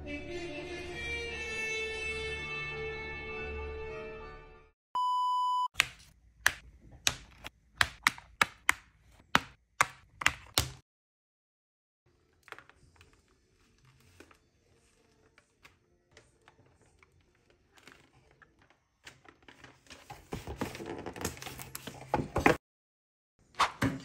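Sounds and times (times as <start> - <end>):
background music: 0.0 - 4.7
electronic beep: 5.0 - 5.7
faint handling sounds: 12.2 - 22.6.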